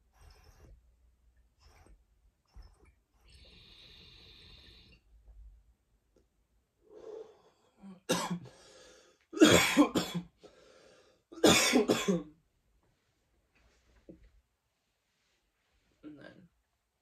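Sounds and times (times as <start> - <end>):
man coughing: 8.1 - 8.5, 9.4 - 10.3, 11.4 - 12.3.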